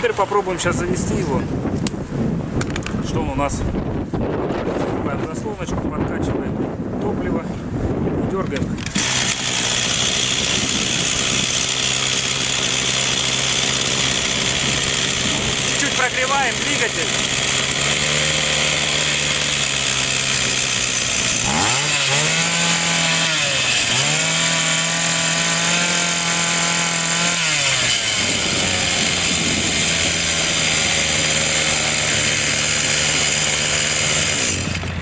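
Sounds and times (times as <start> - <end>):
string trimmer engine revving: 8.6 - 35.0.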